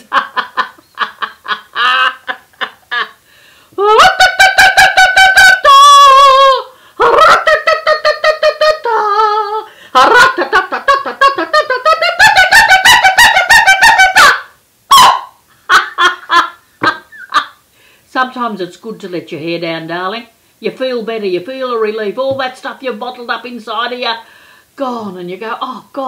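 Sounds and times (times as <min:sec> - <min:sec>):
woman shrieking and wailing: 0:03.8 - 0:10.2.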